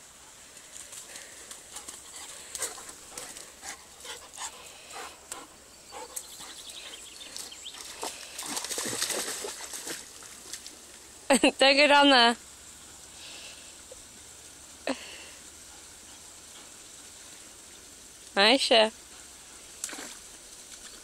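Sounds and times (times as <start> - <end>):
dog splashing in water: 7.0 - 10.8, 19.8 - 21.0.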